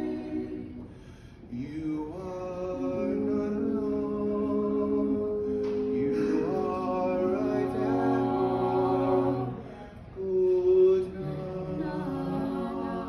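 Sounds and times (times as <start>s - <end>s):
group singing in close harmony: 0.0s - 13.0s.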